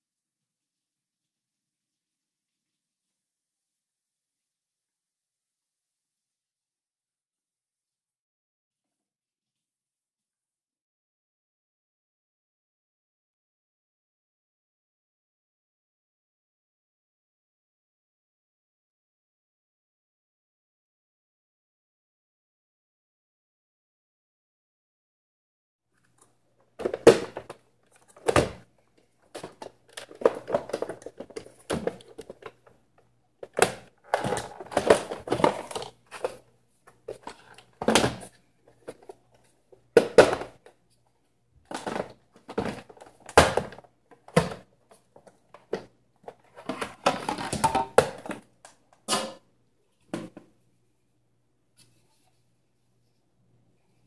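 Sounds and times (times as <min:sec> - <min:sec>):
plastic parts clicking and knocking: 0:26.1 - 0:40.8, 0:41.6 - 0:49.4.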